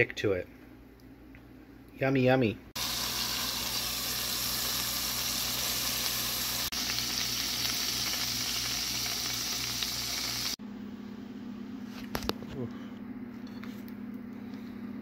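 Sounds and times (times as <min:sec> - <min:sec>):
patty sizzling in frying pan: 0:02.8 - 0:10.6.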